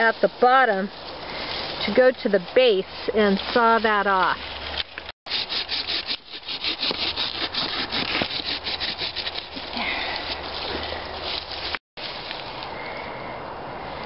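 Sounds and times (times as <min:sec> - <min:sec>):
hand saw cutting branch: 0:04.9 - 0:11.8.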